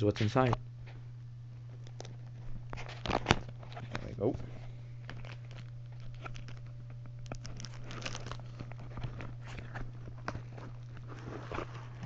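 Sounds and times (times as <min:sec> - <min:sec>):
steady low hum: 0:00.0 - 0:12.0
plastic packaging crinkling: 0:01.8 - 0:04.3, 0:05.0 - 0:12.0.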